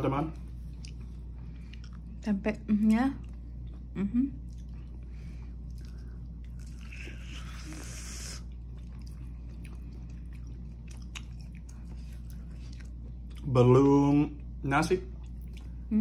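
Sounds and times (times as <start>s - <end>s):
steady low hum: 0.0s - 16.0s
close-up chewing: 0.4s - 2.3s, 2.9s - 13.5s.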